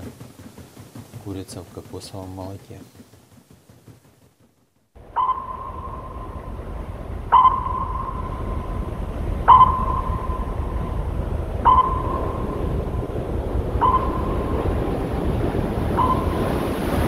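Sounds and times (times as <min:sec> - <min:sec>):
sonar ping: 0:05.0 - 0:13.1, 0:13.7 - 0:14.8, 0:15.9 - 0:16.7
low rumble: 0:05.0 - 0:17.0.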